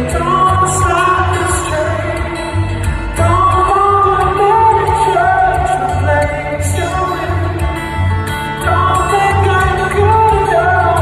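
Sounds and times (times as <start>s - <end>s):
man singing: 0.0s - 11.0s
strummed acoustic guitar: 0.0s - 11.0s.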